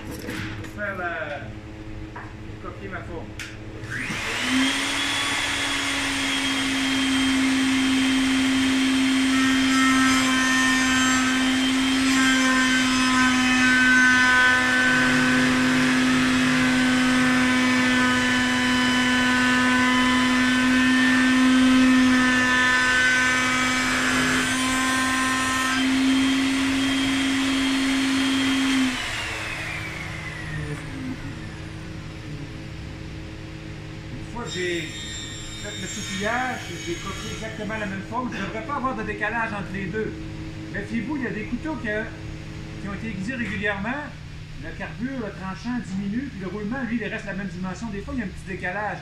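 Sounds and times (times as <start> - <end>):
router whining: 3.4 - 43.6
router bit trimming wood: 3.8 - 32.7, 34.4 - 39.0.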